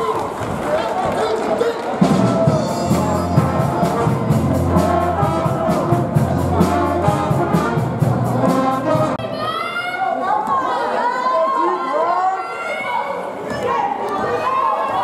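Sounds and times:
brass-heavy music: 2.0 - 9.3.

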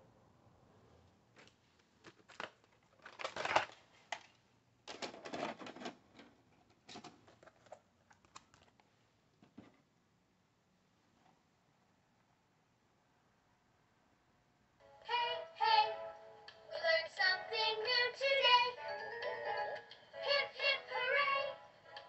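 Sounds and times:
plastic clicks and rattles: 1.4 - 8.9.

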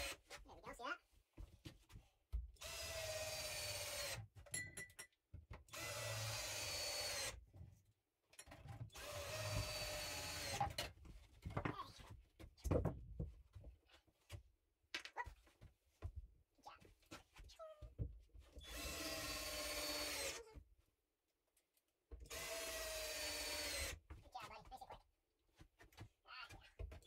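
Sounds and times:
cordless drill driving screws: 2.6 - 4.2, 5.7 - 7.4, 8.9 - 10.9, 18.6 - 20.4, 22.2 - 24.0.

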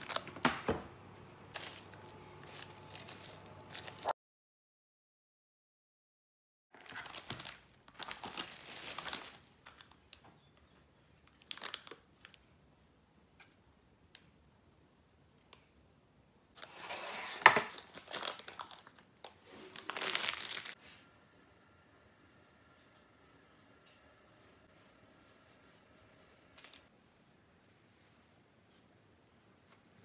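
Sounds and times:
cling film and paper crinkling: 1.2 - 4.1, 6.8 - 10.2, 16.6 - 20.8, 25.1 - 26.9.

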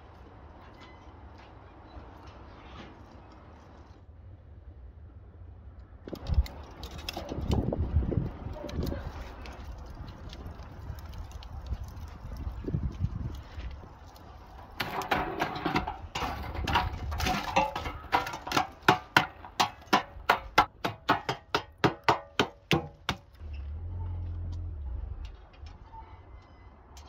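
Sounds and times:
charred logs being struck: 14.6 - 23.4.

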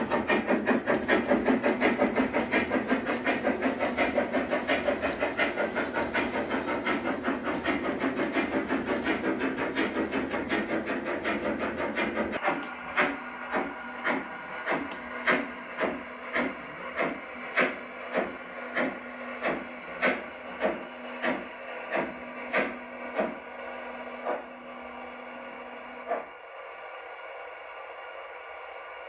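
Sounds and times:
model steam locomotive chuffing: 0.0 - 29.0
steady hum: 0.0 - 29.0.

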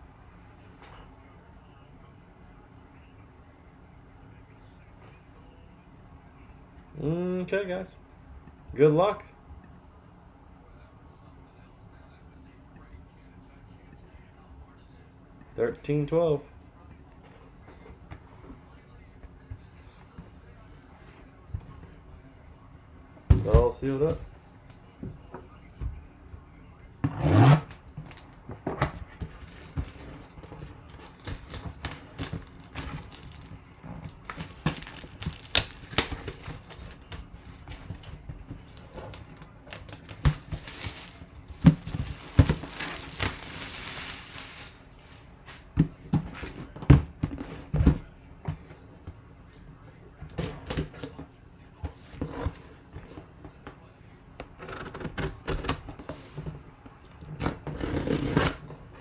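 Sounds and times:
shrink-wrap tearing and crinkling: 31.0 - 37.2, 39.7 - 44.8.

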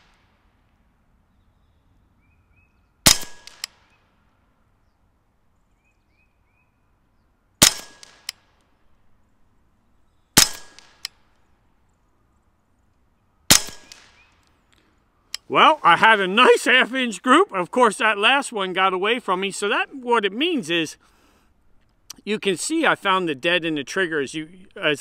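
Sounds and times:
faint bird chirps: 1.2 - 3.0, 4.8 - 7.4, 9.3 - 10.4
air rifle shots cracking: 3.0 - 4.0, 7.6 - 8.5, 10.4 - 11.3, 13.5 - 14.4.

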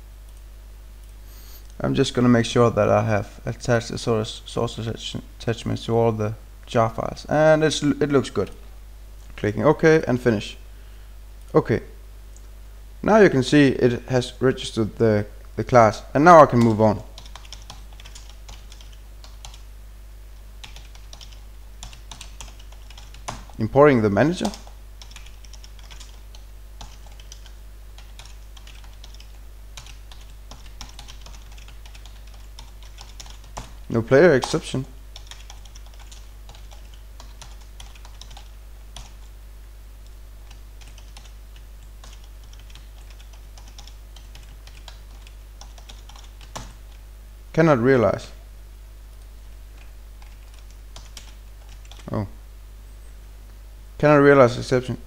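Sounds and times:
low steady hum: 0.0 - 55.0
computer keyboard typing: 16.5 - 19.6, 20.6 - 23.6, 24.4 - 33.8, 35.2 - 39.3, 40.4 - 47.0, 49.2 - 52.2.

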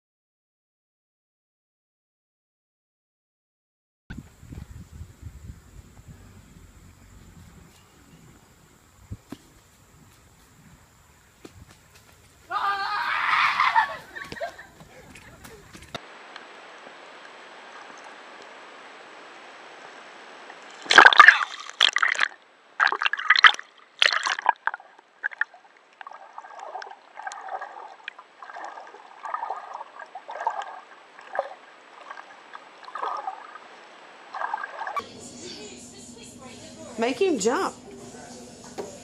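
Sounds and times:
water gurgling and sloshing: 4.1 - 11.3, 17.5 - 35.0
faint steady hiss: 4.1 - 21.1
loud water splashing: 20.8 - 35.0.

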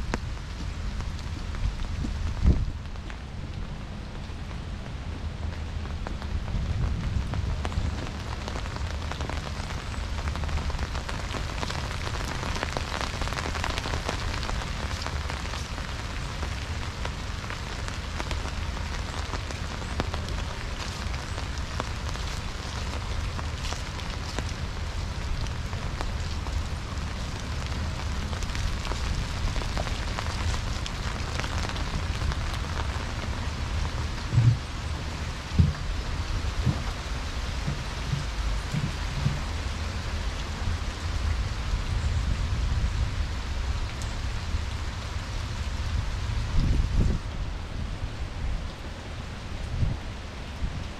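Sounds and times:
rain pattering: 0.0 - 50.9
low steady rumble: 31.9 - 48.4.

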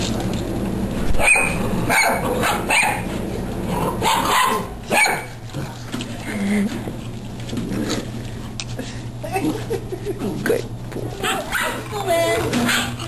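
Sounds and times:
dog barking: 1.2 - 3.0, 4.0 - 5.4, 11.2 - 11.8, 12.6 - 13.0.

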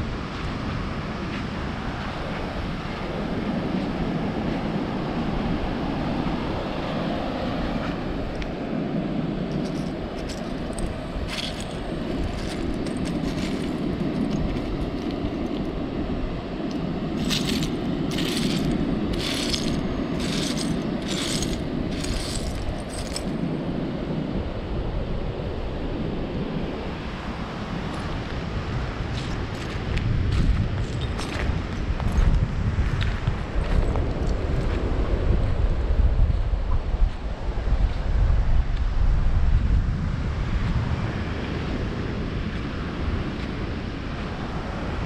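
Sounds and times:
wind noise on microphone: 0.0 - 45.0
footsteps on shelly sand: 0.1 - 3.8, 9.4 - 15.8, 16.6 - 23.5, 27.8 - 35.0.

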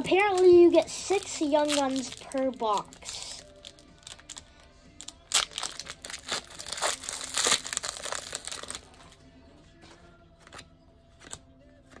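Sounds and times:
plastic wrapper torn and crinkled: 0.2 - 9.0.

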